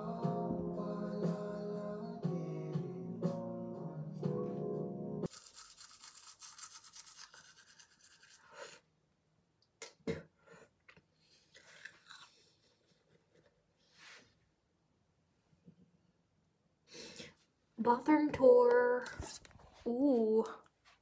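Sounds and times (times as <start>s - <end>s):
toothbrush scrubbing teeth: 5.3s - 8.8s.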